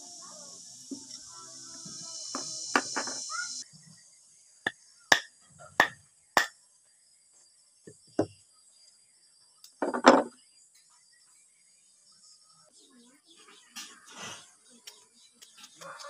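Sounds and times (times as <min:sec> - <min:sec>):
sharp metal knocks: 0:05.1 - 0:06.5.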